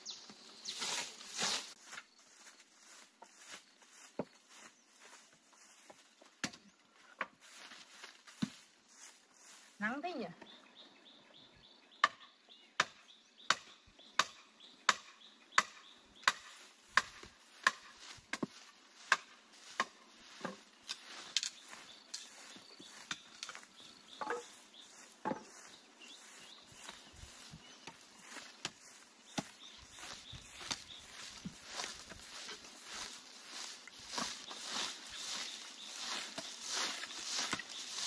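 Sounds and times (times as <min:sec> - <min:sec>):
wood chopping strikes: 0:12.8 - 0:18.5, 0:19.1 - 0:20.6.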